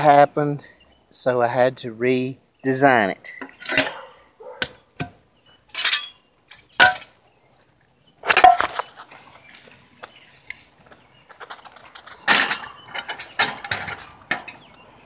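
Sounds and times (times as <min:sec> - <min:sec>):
metal parts clanking: 0:03.4 - 0:04.1, 0:05.7 - 0:07.2, 0:08.3 - 0:08.8, 0:11.4 - 0:14.8.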